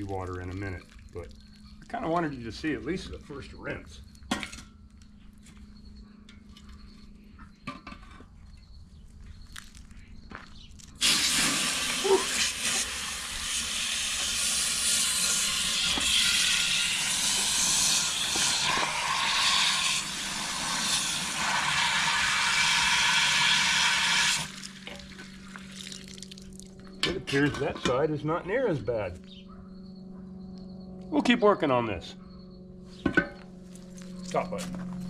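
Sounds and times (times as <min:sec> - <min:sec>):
hose water rushing and splashing: 0:11.0 - 0:26.6.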